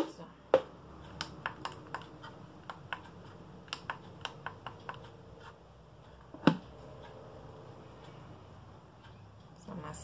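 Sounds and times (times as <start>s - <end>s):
small objects clicking and tapping: 0.0s - 5.2s.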